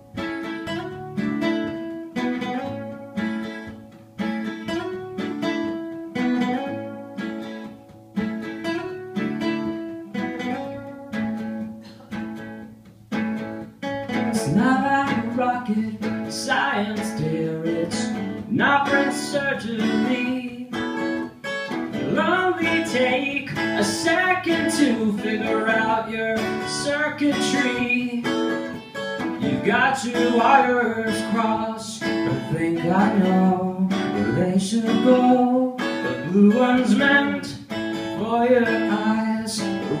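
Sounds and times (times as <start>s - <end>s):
acoustic guitars playing: 0.0s - 40.0s
man singing: 14.2s - 21.2s, 21.9s - 28.8s, 29.4s - 40.0s.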